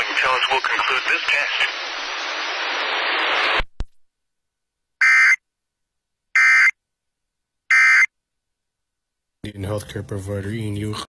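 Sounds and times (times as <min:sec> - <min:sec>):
steady hiss: 0:00.0 - 0:03.6.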